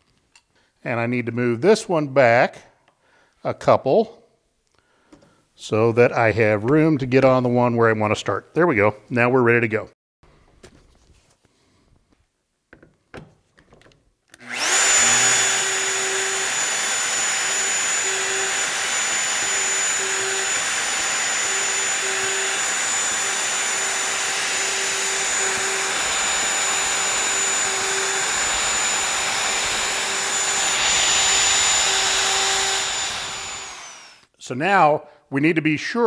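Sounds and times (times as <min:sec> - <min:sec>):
dust extractor running: 0:14.4 - 0:34.2
plunge router running: 0:14.4 - 0:34.2.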